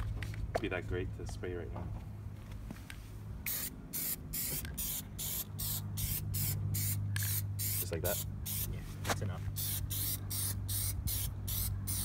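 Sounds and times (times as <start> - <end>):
spray paint can hissing: 3.5 - 8.7, 9.6 - 12.0.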